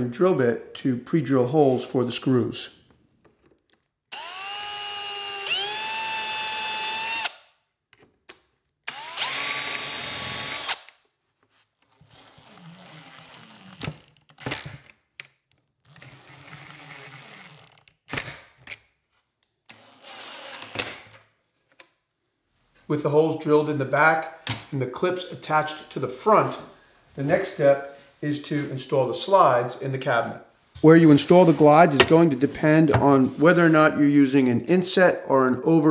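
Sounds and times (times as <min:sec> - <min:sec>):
cordless drill whining: 0:04.1 - 0:07.4, 0:08.9 - 0:10.9, 0:11.9 - 0:14.4
drill driving screws: 0:04.1 - 0:07.5, 0:08.9 - 0:11.0, 0:11.9 - 0:14.8, 0:15.8 - 0:18.3, 0:19.7 - 0:21.0.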